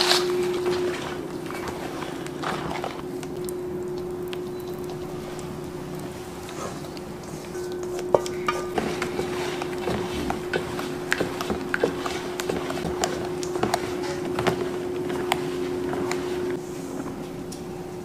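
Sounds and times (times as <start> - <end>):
steady hum: 0.0 - 18.0
spatula tapping metal mixing bowl: 7.5 - 16.6.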